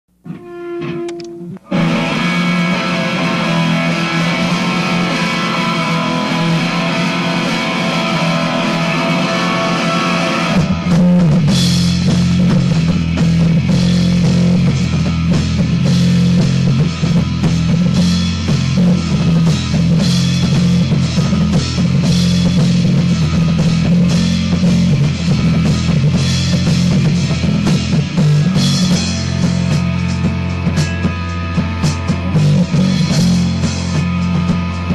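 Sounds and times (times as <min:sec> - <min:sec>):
bass guitar: 0:00.1 - 0:34.9
drums: 0:00.1 - 0:34.9
electric guitar playing: 0:00.2 - 0:34.9.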